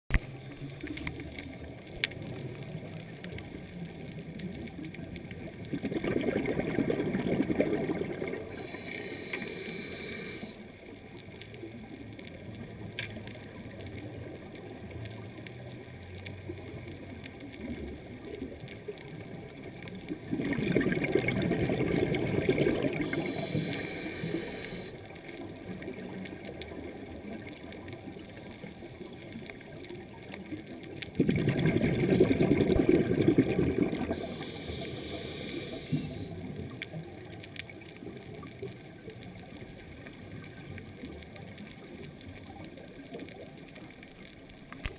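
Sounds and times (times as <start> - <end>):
low underwater rushing noise: 0.1 - 44.9
underwater rushing hiss: 6.2 - 10.6, 20.5 - 25.1, 31.4 - 36.8.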